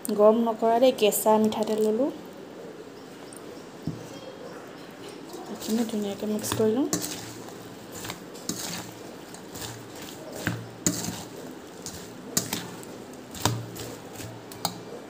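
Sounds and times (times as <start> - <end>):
spoon scraping in steel bowl: 5.3 - 15.0.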